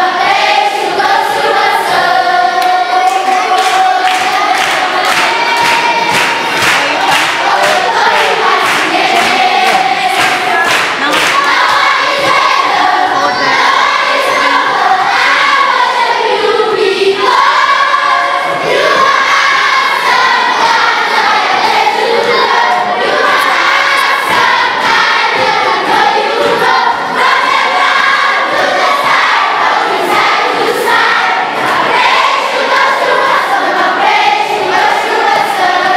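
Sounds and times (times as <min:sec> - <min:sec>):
children singing together: 0:00.0 - 0:35.9
hand clapping: 0:02.6 - 0:12.5.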